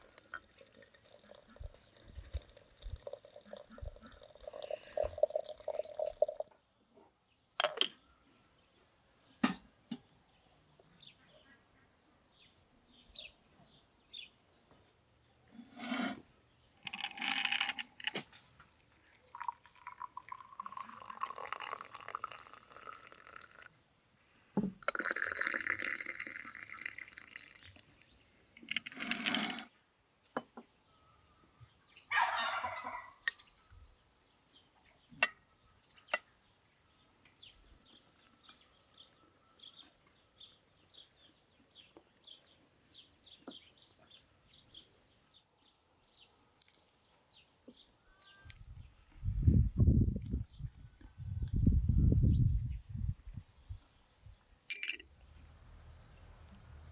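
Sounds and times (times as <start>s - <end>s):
tea pouring into glasses: 0.0s - 6.5s, 16.8s - 18.1s, 19.1s - 23.8s, 24.8s - 28.1s
faint bird chirps: 30.2s - 34.1s, 37.0s - 42.5s, 47.7s - 49.0s
spoons and glass clinking: 54.7s - 55.1s.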